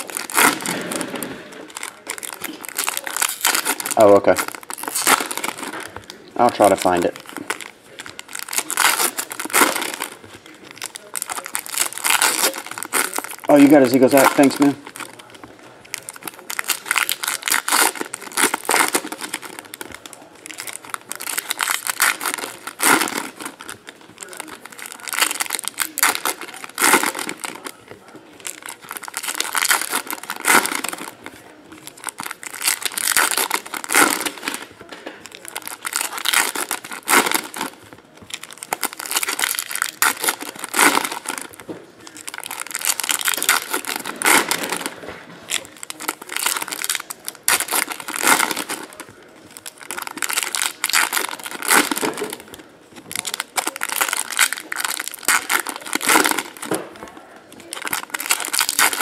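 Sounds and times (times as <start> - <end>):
card pack wrappers crinkling and tearing: 0.0 - 59.0.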